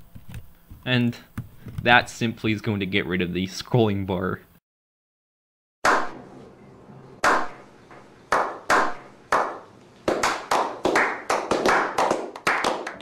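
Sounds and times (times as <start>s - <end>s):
group clapping hands: 5.9s - 6.2s, 7.2s - 7.6s, 8.3s - 13.0s.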